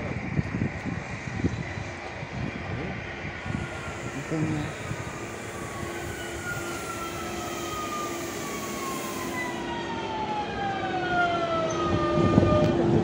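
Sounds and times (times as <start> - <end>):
electric train motor whine: 0.3 - 13.0
steady hum: 2.9 - 10.5.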